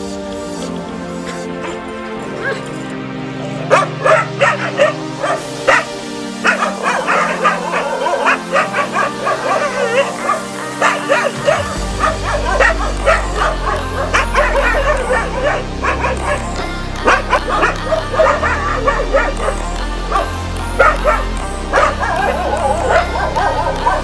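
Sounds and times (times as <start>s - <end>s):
background music: 0.0s - 24.0s
dogs barking: 0.0s - 24.0s.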